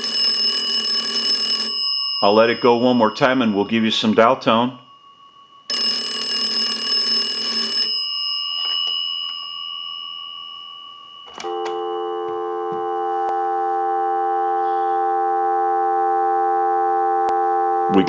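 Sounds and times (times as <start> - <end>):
steady dial tone: 0.0 - 1.8, 5.7 - 8.0, 11.3 - 18.0
telephone bells ringing: 0.0 - 3.5, 5.7 - 10.1, 11.2 - 15.2.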